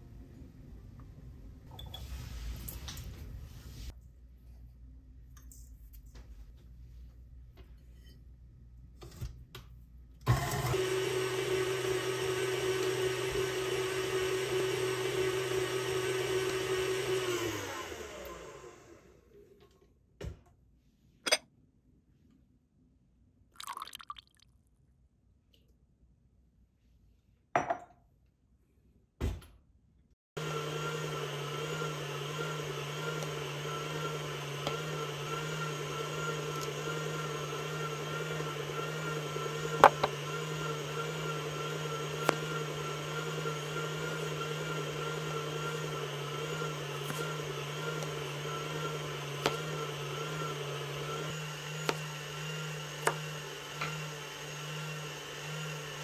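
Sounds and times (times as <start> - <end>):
stand mixer motor humming: 10.3 - 19.4, 30.4 - 56.0.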